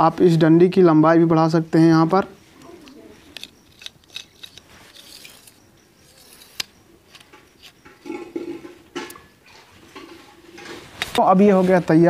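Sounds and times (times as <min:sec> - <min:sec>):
plastic and metal parts clicking: 0:02.6 - 0:09.2.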